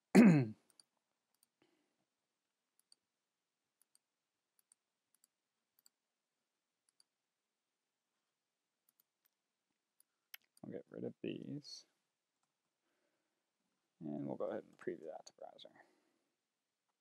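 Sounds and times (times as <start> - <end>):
computer mouse clicks: 2.8 - 3.0, 4.6 - 6.0.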